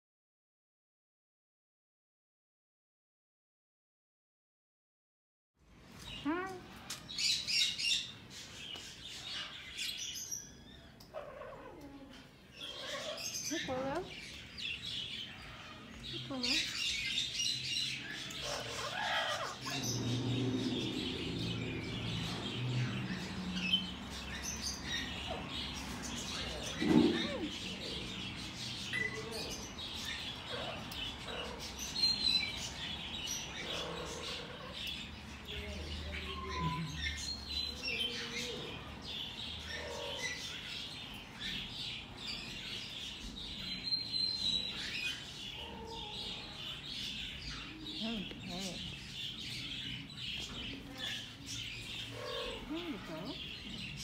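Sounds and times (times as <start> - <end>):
parrots chirping: 6.1 - 54.0
parrot squawk: 12.6 - 13.9, 18.4 - 20.2.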